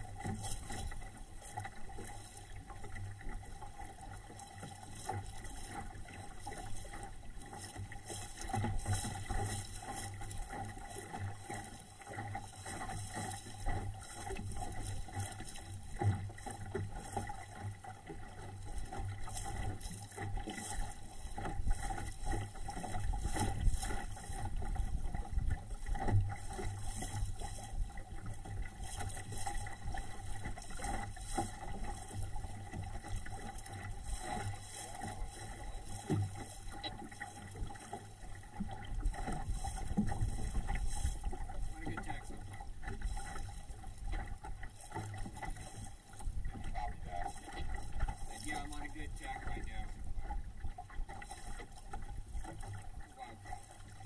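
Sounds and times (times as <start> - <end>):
water splashing along boat hull: 0.0 - 54.0
wind rumble on microphone: 18.6 - 37.0, 38.5 - 44.4.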